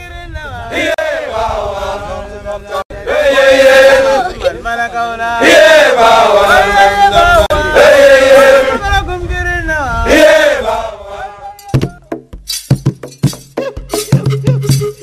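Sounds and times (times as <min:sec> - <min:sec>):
male voices chanting: 0:00.3 - 0:09.0, 0:10.0 - 0:12.0
sharp instrument strikes: 0:11.6 - 0:15.0.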